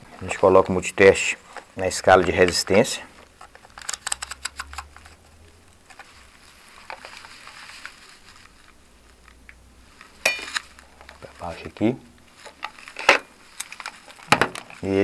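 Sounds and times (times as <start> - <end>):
rustling: 0.0 - 15.0
plastic clicks: 3.4 - 5.2.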